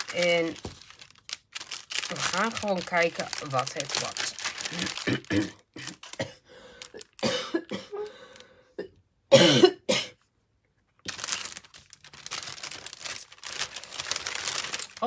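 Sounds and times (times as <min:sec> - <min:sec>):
cellophane and paper rustling: 0:00.0 - 0:07.2, 0:11.0 - 0:15.0
person coughing: 0:04.7 - 0:06.5, 0:07.2 - 0:08.2, 0:08.8 - 0:10.2.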